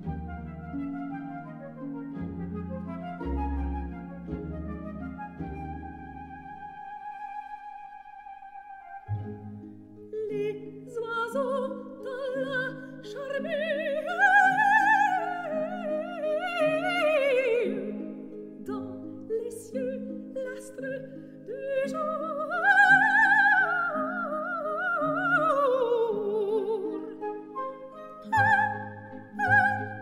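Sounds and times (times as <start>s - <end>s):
orchestra holding chords: 0.0s - 6.8s
operatic soprano singing: 10.2s - 30.0s.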